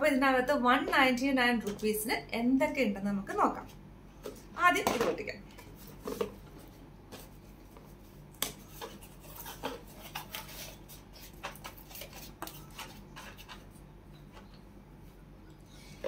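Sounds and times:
cardboard rustling and scraping: 0:05.8 - 0:13.7.

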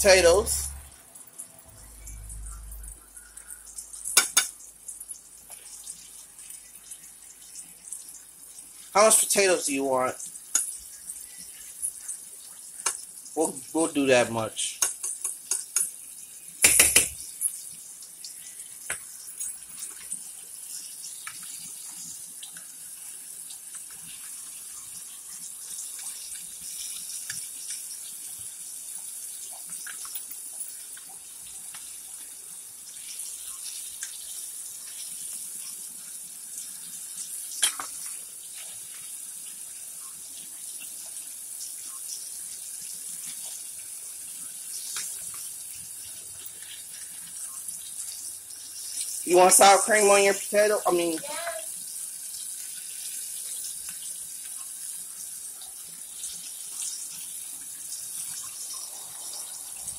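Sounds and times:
steady hiss: 0:00.0 - 0:01.0, 0:01.6 - 0:29.2
sharp knock: 0:16.6 - 0:17.2.

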